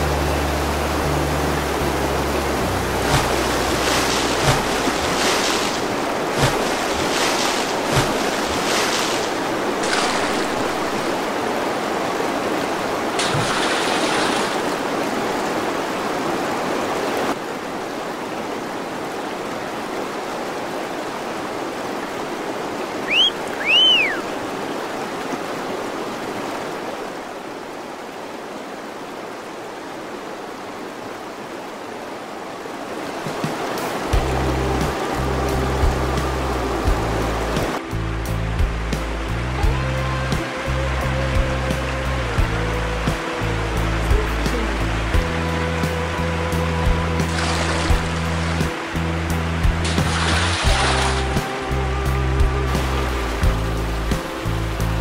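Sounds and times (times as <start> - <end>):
paddle splashes: 0.0 - 17.5, 18.2 - 30.8, 32.5 - 37.9, 46.7 - 55.0
river water rushing: 0.0 - 55.0
paddle knocks against boat: 3.1 - 5.8
short high whistles: 23.1 - 24.3.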